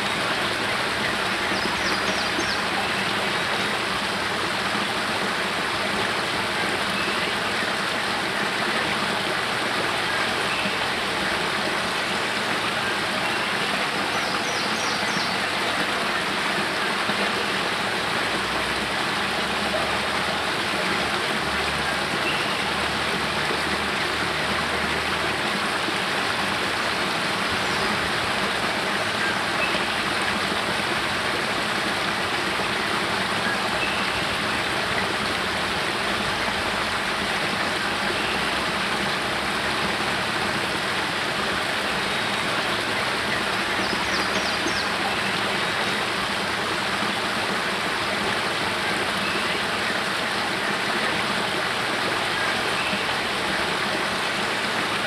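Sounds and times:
water splashing down cascade: 0:00.0 - 0:55.0.

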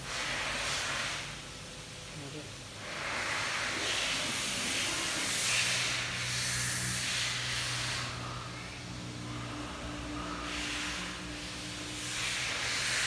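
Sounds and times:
broad hiss: 0:00.0 - 0:01.5, 0:02.8 - 0:08.6, 0:10.0 - 0:13.0
low steady hum: 0:00.0 - 0:13.0.

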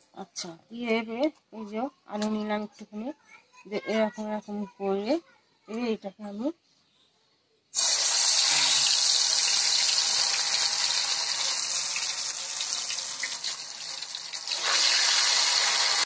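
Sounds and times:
hot oil sizzling: 0:07.8 - 0:16.0.

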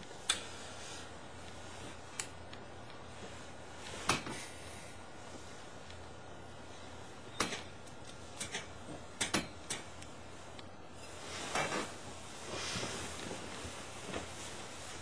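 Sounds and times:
sharp clicks and knocks: 0:07.4 - 0:10.7
clothing rustling: 0:10.2 - 0:15.0.

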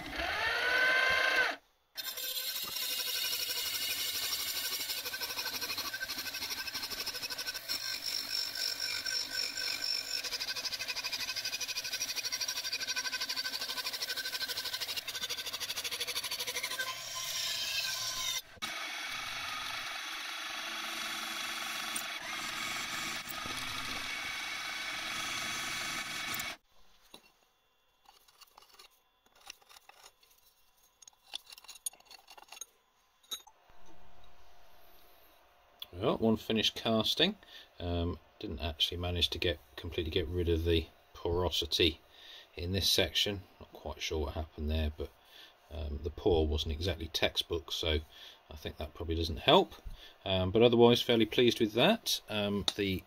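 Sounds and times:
mill drilling holes: 0:00.0 - 0:26.6
milling machine cutter whine: 0:16.6 - 0:26.6.

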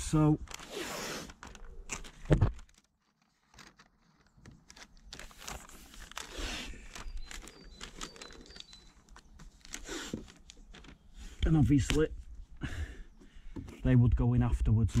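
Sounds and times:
masking paper rustling and crinkling: 0:00.0 - 0:12.6.

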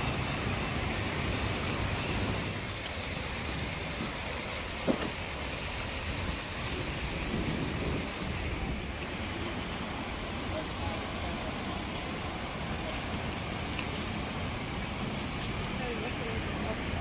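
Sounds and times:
wind rumbling on microphone: 0:00.0 - 0:11.3
rushing splashing water: 0:00.0 - 0:17.0.

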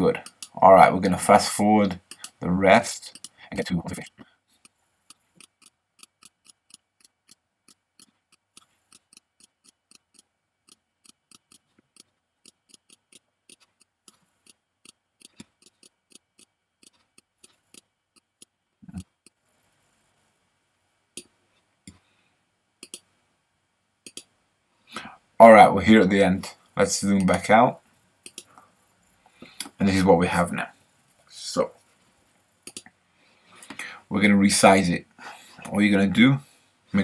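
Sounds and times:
computer mouse clicks: 0:03.1 - 0:03.4, 0:04.0 - 0:20.1, 0:22.8 - 0:23.1, 0:24.0 - 0:24.3, 0:28.2 - 0:29.8, 0:32.4 - 0:33.0.

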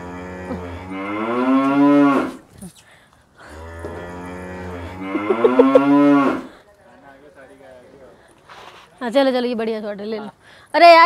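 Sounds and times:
cattle mooing: 0:00.0 - 0:02.4, 0:03.6 - 0:06.5.

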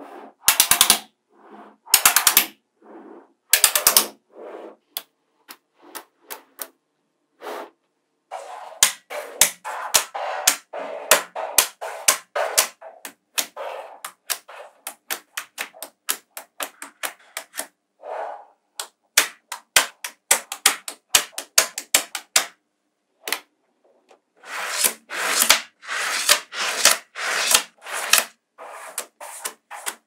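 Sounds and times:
magnetic balls clicking together: 0:03.5 - 0:04.2.

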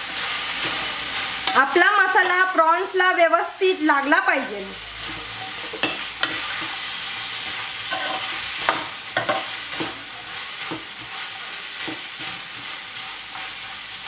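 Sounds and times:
food sizzling in a frying pan: 0:00.0 - 0:14.0
spatula scraping and knocking pan: 0:05.0 - 0:14.0.

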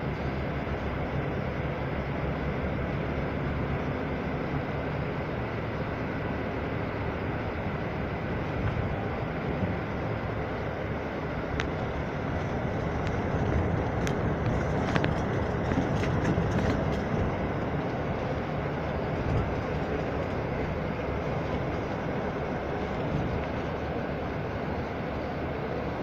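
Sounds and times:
vehicle interior rumble: 0:00.0 - 0:26.0.

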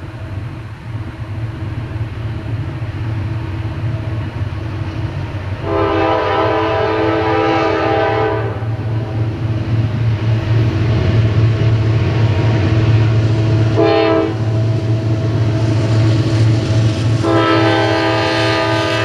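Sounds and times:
diesel locomotive engines rumbling: 0:00.0 - 0:19.0
locomotive air horn blast: 0:05.6 - 0:08.8, 0:13.8 - 0:14.6, 0:17.2 - 0:19.0.

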